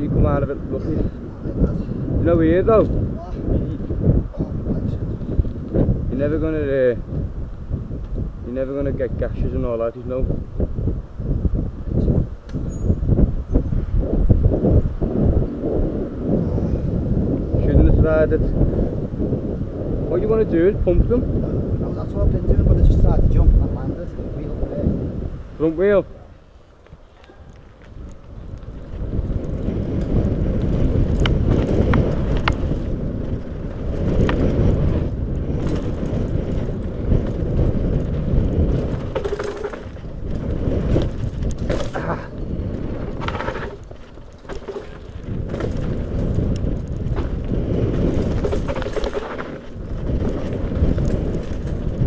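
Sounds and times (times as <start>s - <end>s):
wind buffeting microphone: 0.0s - 52.0s
bike clicks and knocks: 12.4s - 12.9s, 26.8s - 52.0s
tyres rumbling over dirt: 27.7s - 52.0s.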